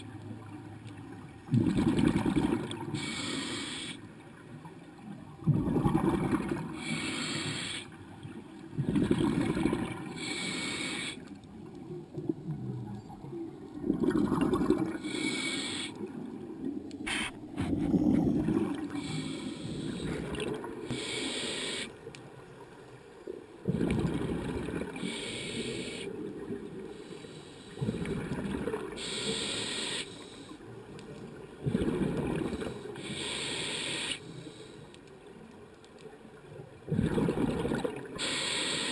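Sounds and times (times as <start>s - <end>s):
gurgling exhaled bubbles: 1.5s - 3.0s, 5.4s - 6.9s, 8.7s - 10.3s, 13.7s - 15.2s, 17.1s - 19.2s, 23.6s - 25.2s, 27.8s - 29.1s, 31.6s - 32.9s, 36.8s - 38.2s
regulator hissing inhalations: 3.0s - 4.0s, 6.8s - 8.0s, 10.2s - 11.3s, 15.0s - 16.0s, 19.0s - 20.2s, 20.9s - 22.0s, 25.0s - 26.1s, 26.9s - 27.8s, 29.0s - 30.6s, 33.0s - 35.0s, 38.2s - 38.9s.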